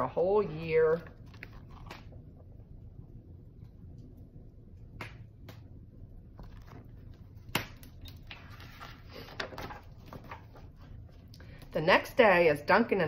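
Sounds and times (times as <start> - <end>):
paper and book pages rustling: 0.4 - 2.2, 6.4 - 7.4, 8.1 - 11.3.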